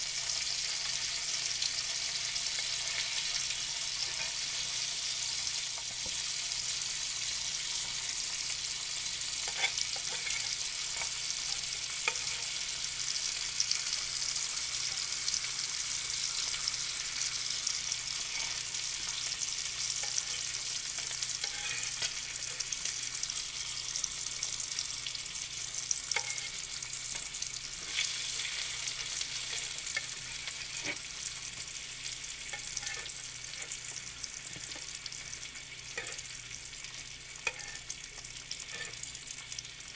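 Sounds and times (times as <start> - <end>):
bacon sizzling in a pan: 0.0 - 39.9
metal fork clicking and scraping: 20.0 - 23.0, 26.2 - 26.6, 32.5 - 33.8, 36.0 - 36.3, 37.4 - 37.9.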